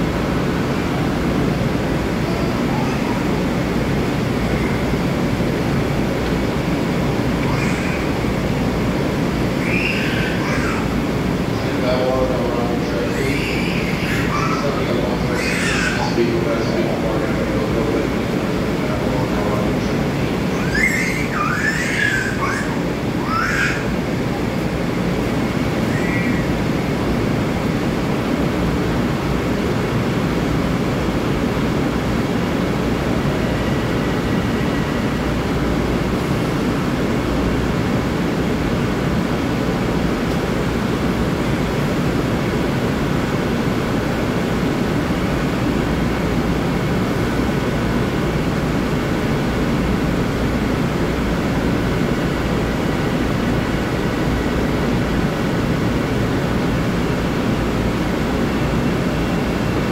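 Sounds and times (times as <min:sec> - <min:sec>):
faint high whines: 0:00.0 - 0:27.6
electric train hum and rush: 0:00.0 - 0:59.9.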